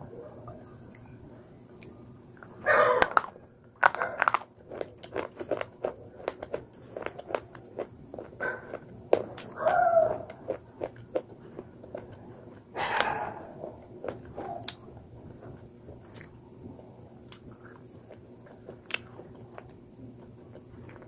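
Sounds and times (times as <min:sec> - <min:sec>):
crunching and chewing: 0:01.8 - 0:21.0.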